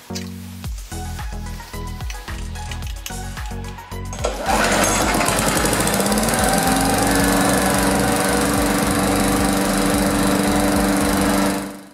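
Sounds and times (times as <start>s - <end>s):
lawn mower engine running: 4.2s - 11.9s.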